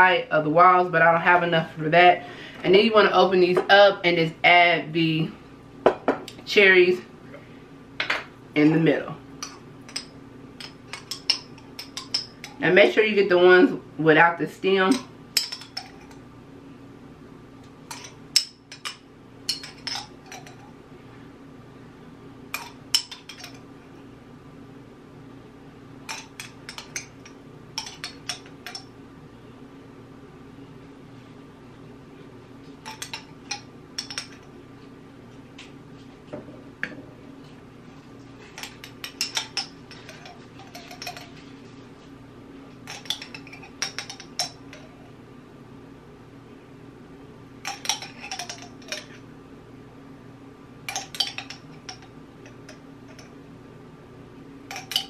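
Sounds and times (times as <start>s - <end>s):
steady hum: 0.0s - 55.0s
metal spoon clinking in glass jar: 17.9s - 20.6s, 26.1s - 28.8s, 32.8s - 34.4s, 38.6s - 41.4s, 42.9s - 44.8s, 47.6s - 49.2s, 50.9s - 53.2s, 54.7s - 55.0s.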